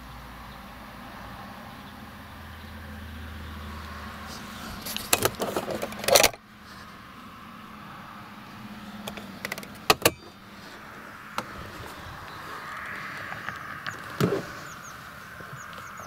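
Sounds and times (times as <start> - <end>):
low vehicle cabin hum: 1.7 - 16.0
clattering clicks and rattles: 4.8 - 6.4, 9.0 - 10.4.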